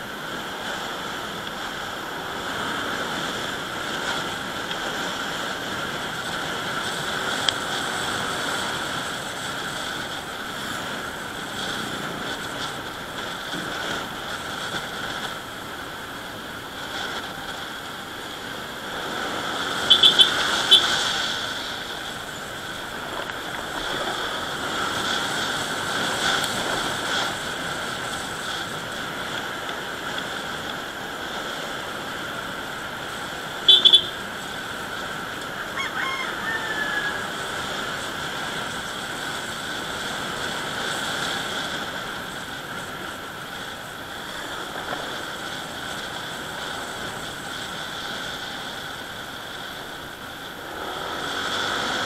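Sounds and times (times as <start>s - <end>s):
motorcycle engine: 0.1s - 35.6s
quick high beeps: 19.9s - 21.0s, 33.7s - 34.2s.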